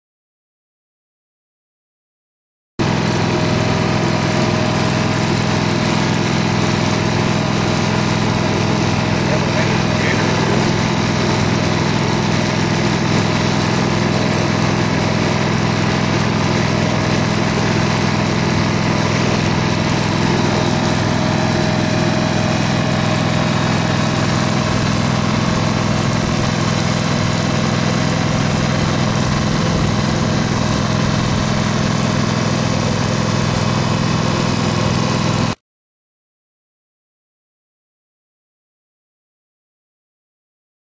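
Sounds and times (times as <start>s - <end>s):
engine droning steadily: 2.8s - 35.6s.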